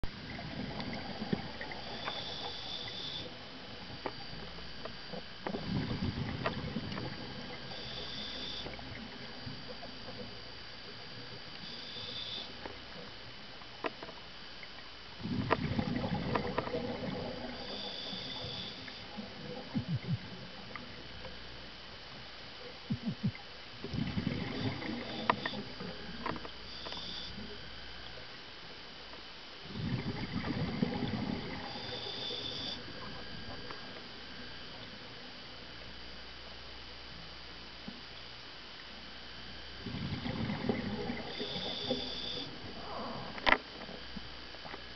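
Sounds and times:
exhaled bubbles gurgling: 0.1 - 12.4, 15.2 - 21.2, 22.9 - 27.9, 29.6 - 34.6, 39.5 - 44.1
exhaled bubbles rushing: 0.2 - 1.9, 5.6 - 7.6, 15.2 - 17.7, 23.9 - 25.8, 29.7 - 32.2, 39.8 - 41.9
regulator inhalation hiss: 1.8 - 3.3, 7.7 - 8.8, 11.6 - 12.6, 17.6 - 19.1, 26.7 - 27.5, 31.6 - 32.8, 41.4 - 43.3.

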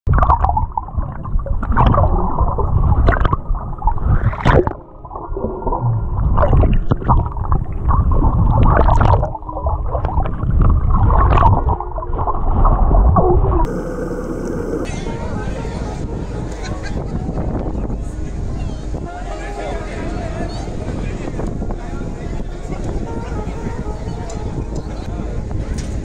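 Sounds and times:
water churning underwater: 0.1 - 25.5
heavy low rumble: 1.1 - 26.0.

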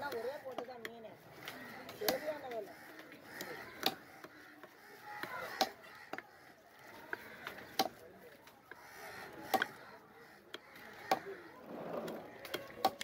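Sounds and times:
faint voices: 0.0 - 13.0.

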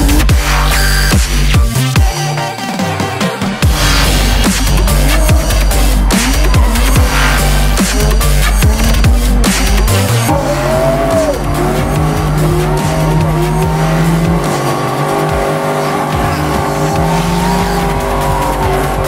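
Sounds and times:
car engine revving: 0.0 - 19.0
tyres squealing: 0.0 - 19.0.

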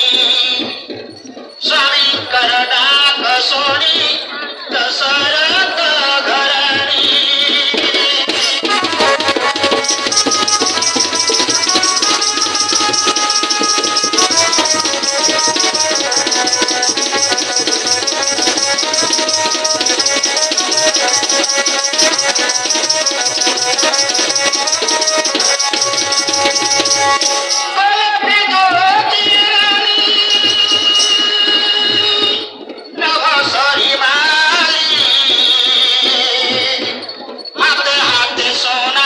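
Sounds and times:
jingling percussion: 0.0 - 39.0
hand drums: 4.6 - 39.0
held-note melody: 8.6 - 27.8.

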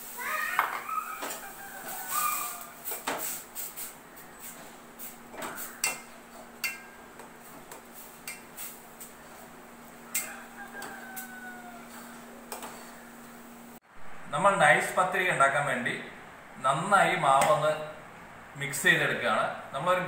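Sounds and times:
bird calling: 0.2 - 2.8, 4.0 - 7.1.

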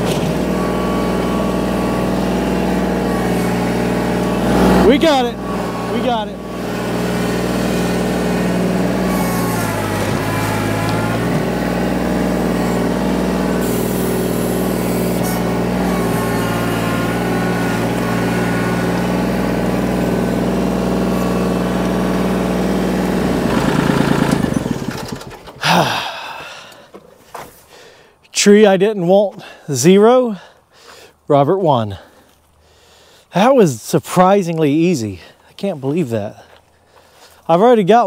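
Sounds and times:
tractor diesel engine running: 0.0 - 27.2.

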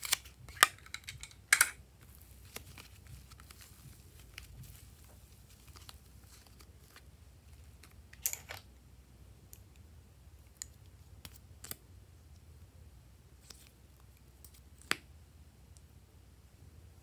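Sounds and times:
hands handling slime and tubes: 0.0 - 8.7.

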